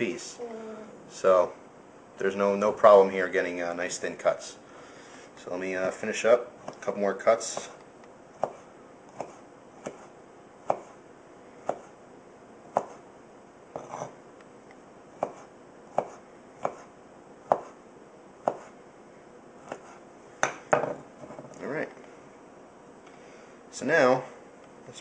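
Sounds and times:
knife slicing sausage: 0:19.6 - 0:20.0.

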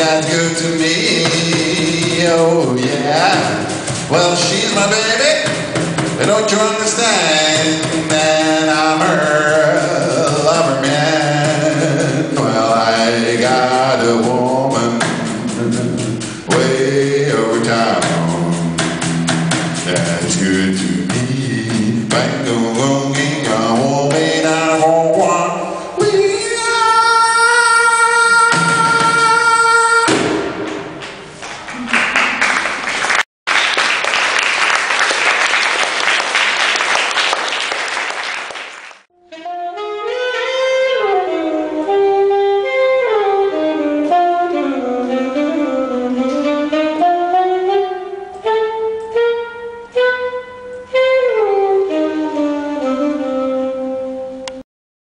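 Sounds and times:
applause: 0:31.4 - 0:39.1
solo saxophone melody: 0:39.1 - 0:54.6.

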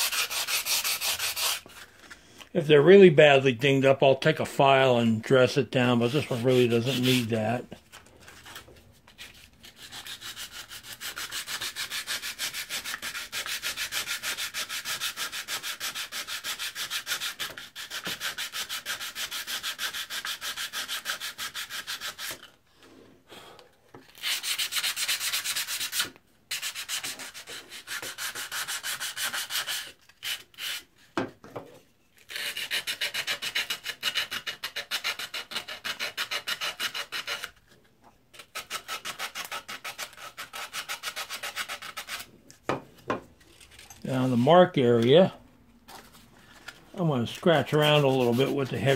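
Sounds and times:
sandpaper rasping on steel blade: 0:00.0 - 0:01.8, 0:06.0 - 0:07.6, 0:09.2 - 0:22.5, 0:24.2 - 0:30.9, 0:32.3 - 0:37.6, 0:38.4 - 0:42.3, 0:47.2 - 0:48.9.

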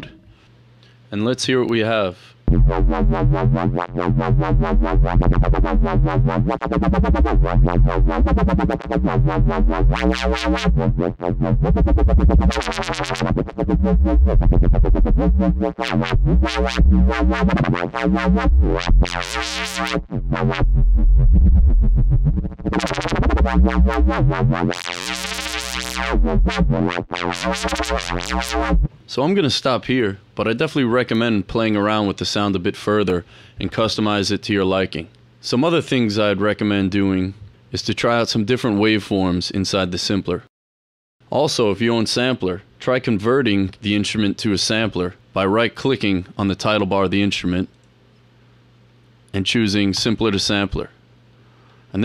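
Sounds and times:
wobbling synth bass: 0:02.5 - 0:28.9.

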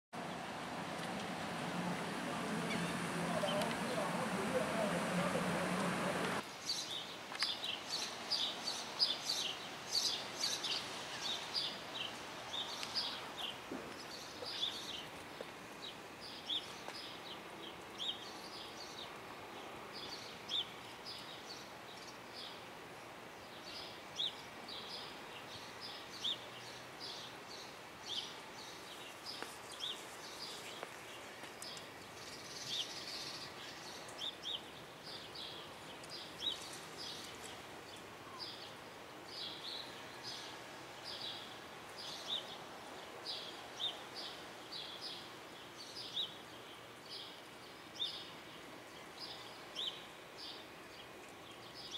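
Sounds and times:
city background hum: 0:00.2 - 0:06.4
small birds chirping: 0:00.2 - 0:22.6, 0:23.4 - 0:51.9.

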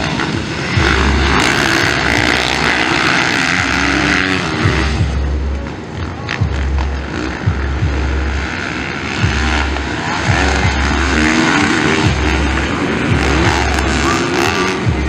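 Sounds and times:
motocross bike engines racing: 0:00.0 - 0:15.0.

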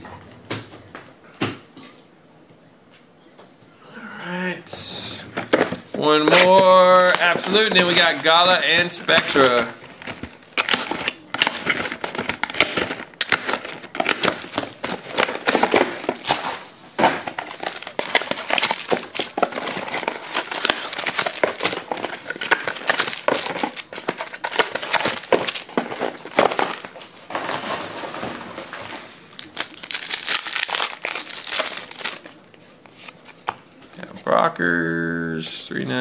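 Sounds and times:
plastic wrapping crinkling: 0:05.5 - 0:33.5.

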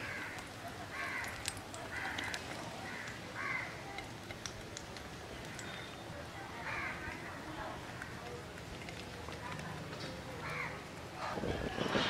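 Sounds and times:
crow cawing: 0:00.0 - 0:03.8, 0:06.6 - 0:07.1, 0:10.4 - 0:10.8.

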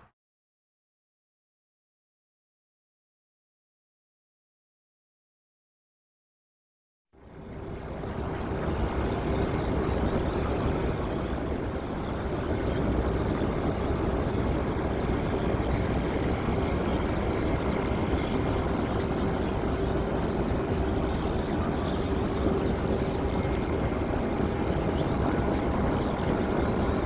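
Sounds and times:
aircraft engines running: 0:07.2 - 0:27.0.

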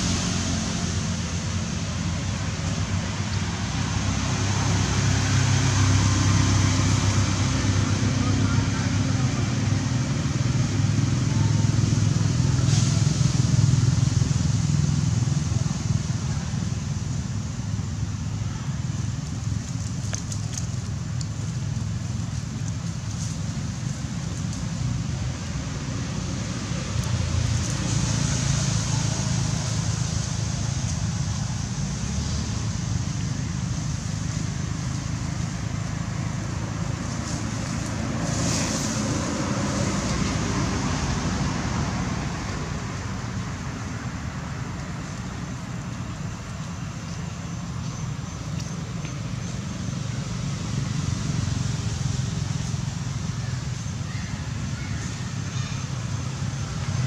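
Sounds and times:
hiss: 0:11.8 - 0:17.3, 0:37.0 - 0:40.6.

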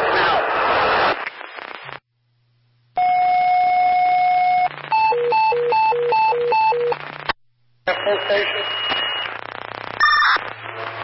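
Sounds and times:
steady radio alert tone: 0:07.9 - 0:09.3.

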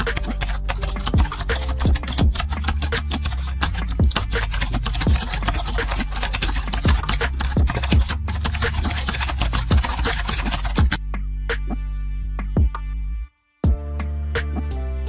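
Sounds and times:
keyboard typing: 0:00.0 - 0:11.0
music with bass-drum beat: 0:00.0 - 0:13.0, 0:13.6 - 0:15.0.

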